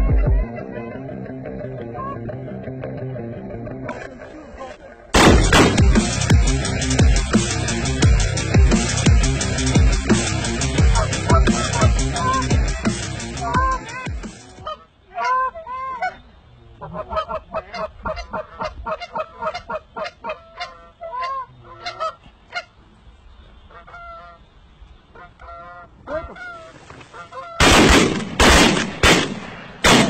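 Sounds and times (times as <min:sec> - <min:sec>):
loud gunshots: 0:05.2 - 0:06.2, 0:27.6 - 0:30.0
waterfowl honking: 0:10.6 - 0:16.2, 0:16.8 - 0:22.8, 0:23.6 - 0:24.5, 0:25.1 - 0:27.7.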